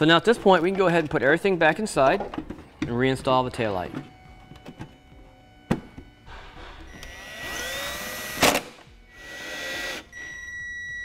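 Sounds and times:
power driver whirring: 4.1s - 11.0s.

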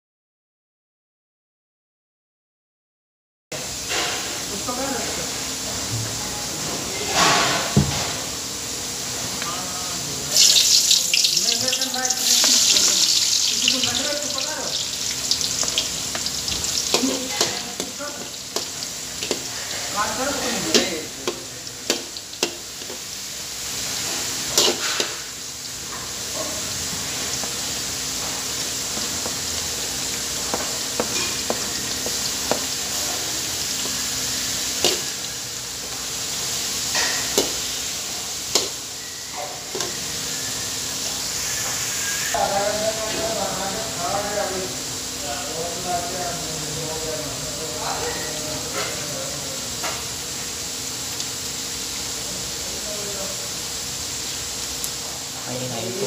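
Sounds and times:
food sizzling in hot oil: 3.6s - 56.0s
utensils clacking on wok: 10.4s - 20.0s, 20.6s - 23.0s, 24.5s - 25.2s, 34.8s - 35.1s.

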